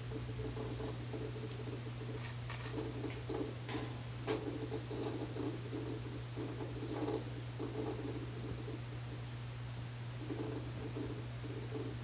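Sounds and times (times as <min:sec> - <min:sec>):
washing machine hum: 0:00.0 - 0:12.0
washing machine rattling: 0:02.1 - 0:08.1.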